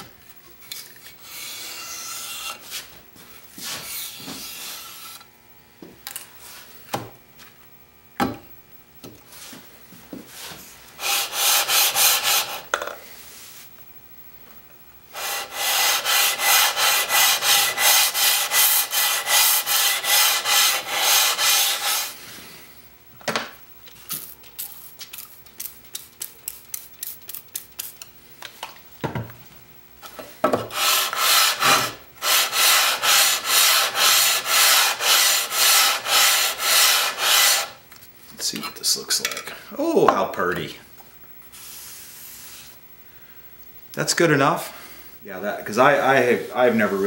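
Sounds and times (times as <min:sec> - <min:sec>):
metal plane scraping on wet sandpaper: 0:01.2 - 0:02.9, 0:11.0 - 0:12.6, 0:15.2 - 0:22.2, 0:30.7 - 0:37.8.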